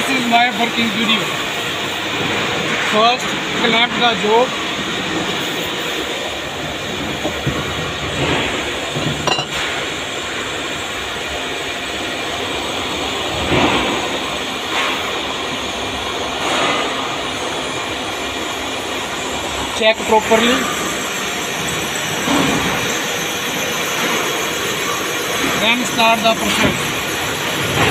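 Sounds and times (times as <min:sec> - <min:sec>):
workshop machinery drone: 0:00.0 - 0:27.9
metallic clinks and knocks: 0:09.0 - 0:09.6.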